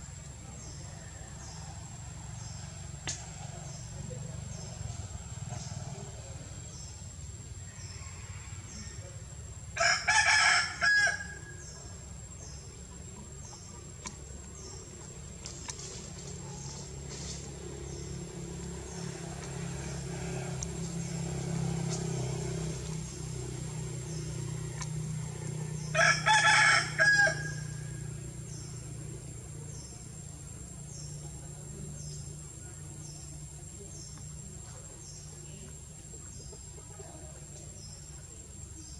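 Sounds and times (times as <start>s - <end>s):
insects chirping: 0.0s - 38.9s
rooster crowing: 7.7s - 9.1s, 9.8s - 11.6s, 25.8s - 28.0s.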